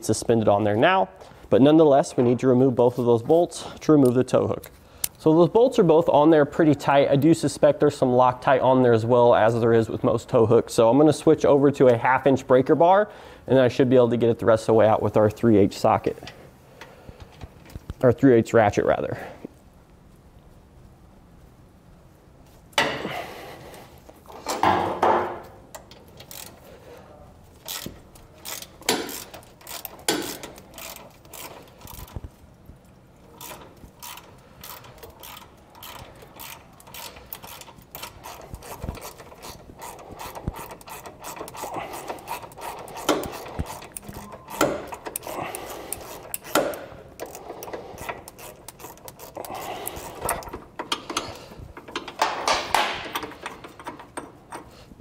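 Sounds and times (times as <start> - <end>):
socket ratchet clicking: 27.7 - 32.2, 33.4 - 54.8.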